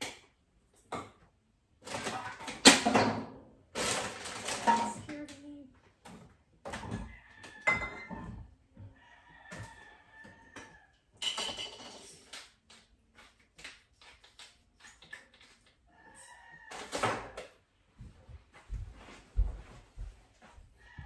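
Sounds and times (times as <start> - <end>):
frying pan and utensils clanking: 11.2 - 12.1.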